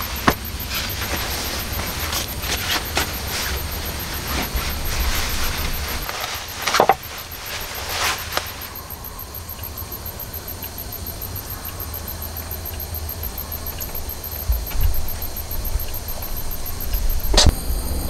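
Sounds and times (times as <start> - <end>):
sleeping bag rustling: 0.0 - 8.9
steady low rumble: 0.0 - 18.0
faint ticks: 5.3 - 17.6.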